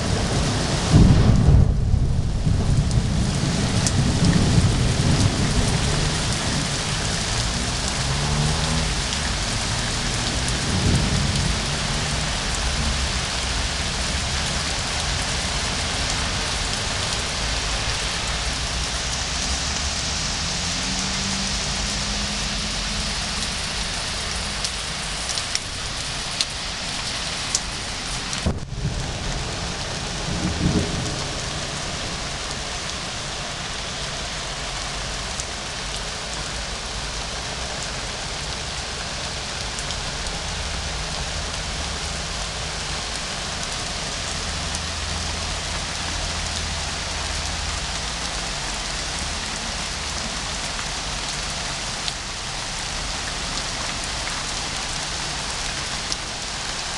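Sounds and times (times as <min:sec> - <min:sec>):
thunder rumbling: 0:00.0 - 0:20.1, 0:27.7 - 0:33.4
rain falling on plants: 0:00.0 - 0:56.9.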